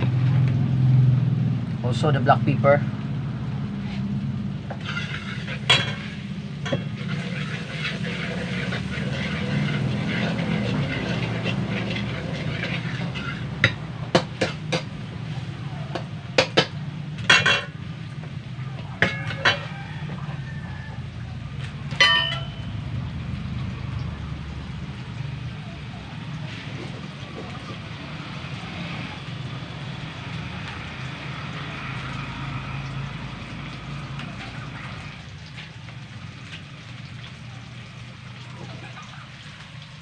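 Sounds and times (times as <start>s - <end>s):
vegetables sizzling in wok: 3.0s - 40.0s
steel ladle scraping pan: 4.7s - 15.0s, 19.0s - 20.4s, 21.9s - 22.8s
sharp metal clanks: 21.9s - 22.8s.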